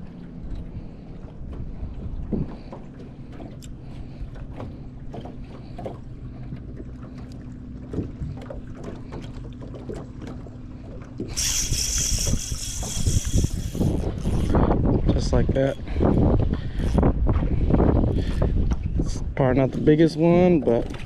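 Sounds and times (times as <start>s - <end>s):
boat engine low hum: 0.0s - 21.0s.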